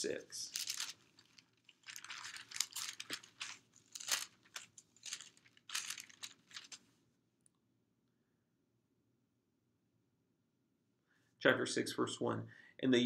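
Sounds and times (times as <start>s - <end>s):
paper pages rustling: 0.0s - 6.9s.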